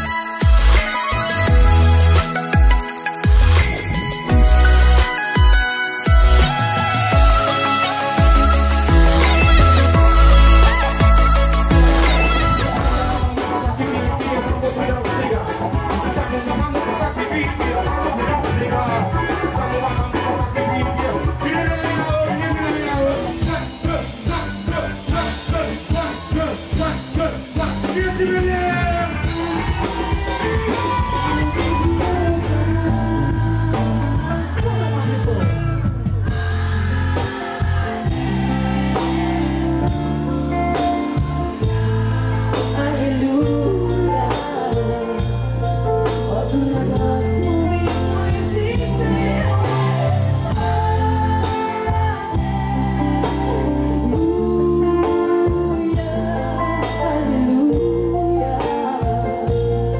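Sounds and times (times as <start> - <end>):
live band music: 0.0 - 59.9
person singing: 5.9 - 35.8, 42.4 - 59.7.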